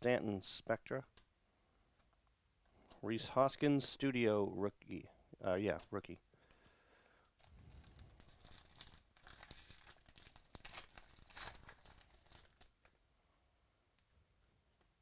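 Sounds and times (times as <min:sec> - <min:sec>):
foil wrapper tearing and crinkling: 0:07.4 - 0:12.9.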